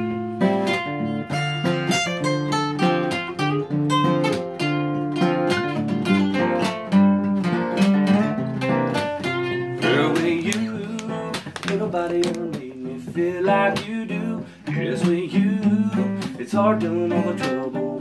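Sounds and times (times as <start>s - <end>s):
acoustic guitars playing: 0.0s - 18.0s.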